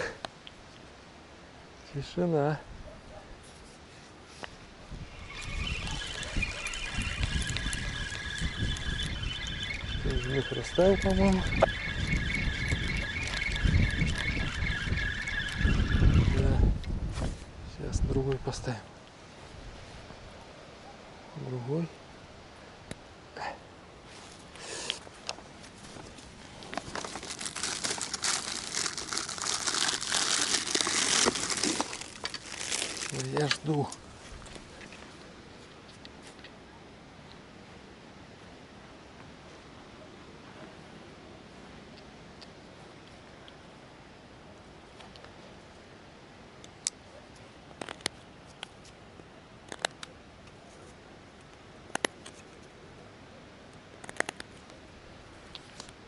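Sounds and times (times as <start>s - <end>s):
faint background hiss: 0.0s - 6.7s, 16.7s - 56.0s
packaging crinkling and rustling: 25.8s - 34.6s
sharp dry clicks: 53.7s - 54.7s.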